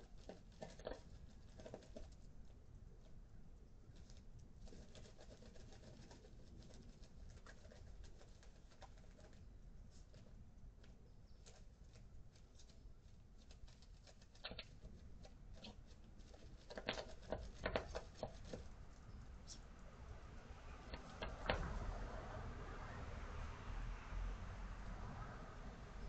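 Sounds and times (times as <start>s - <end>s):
faint outdoor hiss: 0.0s - 26.0s
light ticks and scrapes: 3.9s - 19.7s.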